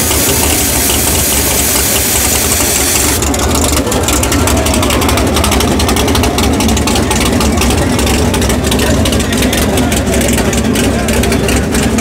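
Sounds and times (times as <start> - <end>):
high steady hiss of nitrous purge: 0.0 - 3.2
race engine idling loudly: 0.0 - 12.0.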